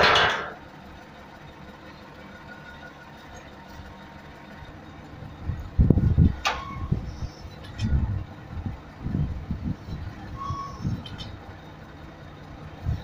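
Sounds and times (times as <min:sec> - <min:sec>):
crane engine rumbling: 0:00.0 - 0:13.0
falling squeal: 0:06.5 - 0:07.9, 0:10.2 - 0:11.3.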